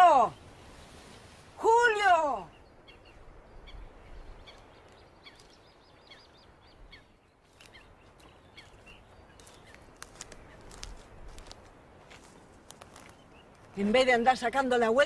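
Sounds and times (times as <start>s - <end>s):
small birds chirping: 0.0s - 14.8s.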